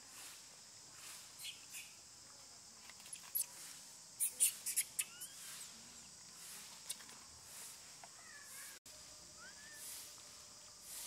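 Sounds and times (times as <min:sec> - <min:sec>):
baby monkeys squeaking: 0:04.2 - 0:05.7
rising chirps: 0:04.2 - 0:05.8, 0:08.5 - 0:10.0.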